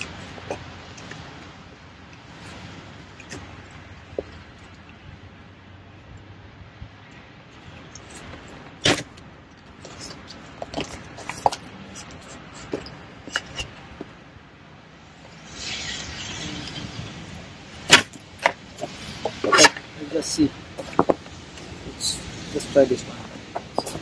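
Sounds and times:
rustling scrape: 9.8s - 13.8s.

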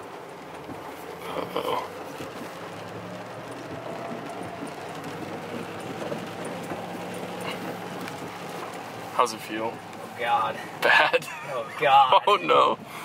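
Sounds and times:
engine hum and road noise: 0.0s - 13.0s
faint ticks: 0.4s - 9.1s.

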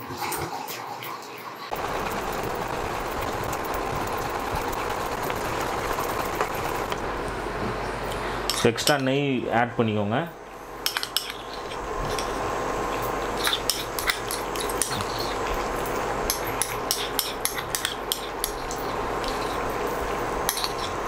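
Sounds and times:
thick mixture boiling and popping: 1.7s - 7.1s, 10.8s - 21.0s
steady hum: 1.7s - 21.0s.

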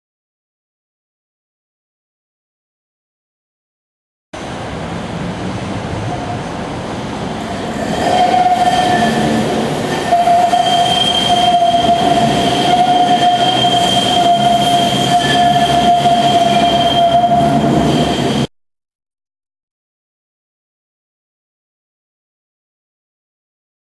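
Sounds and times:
tram running noise: 4.4s - 18.5s
tram wheels squealing on rails: 5.8s - 18.5s.

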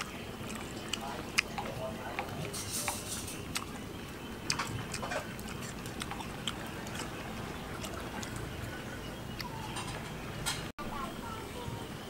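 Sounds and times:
person chewing: 0.0s - 10.0s.

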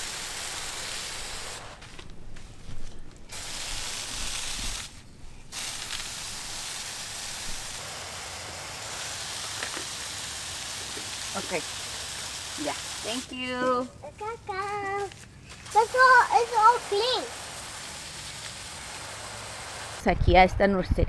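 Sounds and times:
garden hose spraying water: 0.0s - 2.1s, 3.2s - 20.4s.

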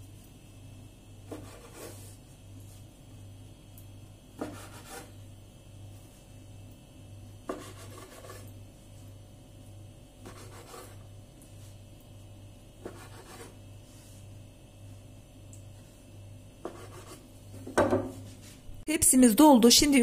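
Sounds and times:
knife slicing dough on board: 1.2s - 2.2s, 4.4s - 5.2s, 7.4s - 8.5s, 10.2s - 11.0s, 12.8s - 13.6s, 16.6s - 17.2s.

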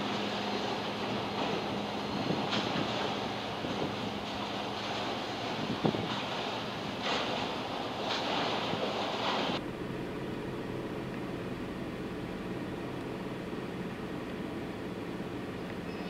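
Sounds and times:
wind buffeting microphone: 0.0s - 9.6s
background machinery noise: 0.0s - 16.0s
low machinery hum: 0.0s - 16.0s.

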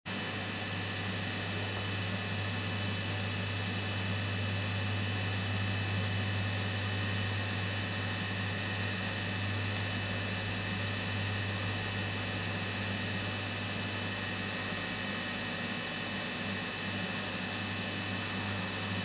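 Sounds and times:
electrical hum: 0.1s - 19.0s.

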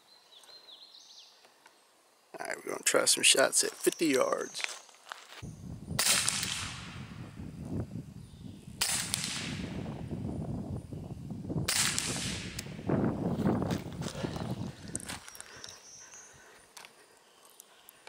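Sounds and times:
suppressed pistol shots: 6.0s - 7.0s, 8.8s - 9.7s, 11.7s - 12.7s.

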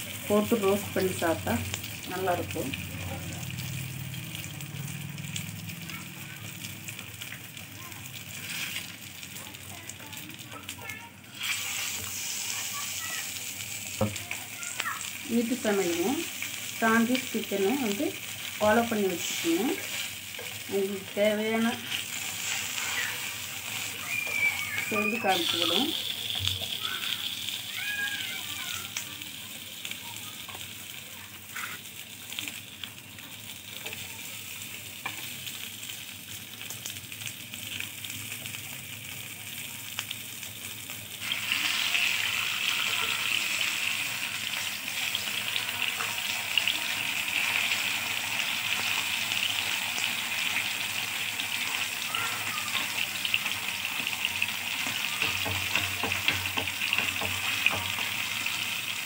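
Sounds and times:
fish sizzling in oil: 0.0s - 59.0s
wooden spatula scrapes and taps: 54.8s - 58.1s.

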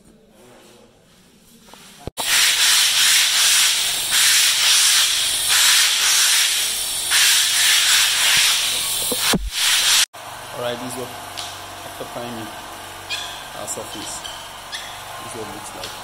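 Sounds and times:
loud surging hiss: 2.2s - 11.2s.

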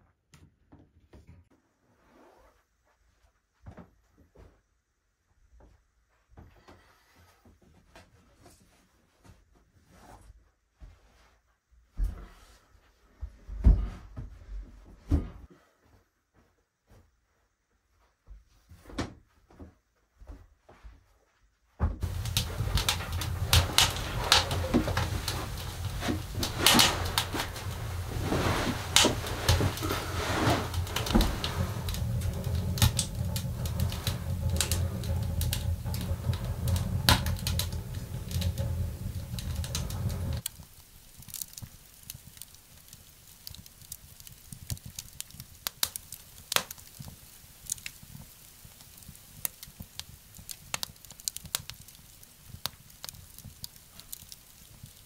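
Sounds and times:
wood fire crackling and popping: 21.9s - 55.0s
steady low rumble: 22.0s - 40.5s.

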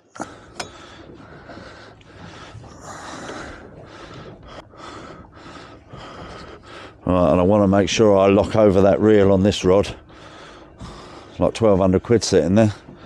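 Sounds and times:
heavy breathing: 0.1s - 7.1s, 10.0s - 11.4s.

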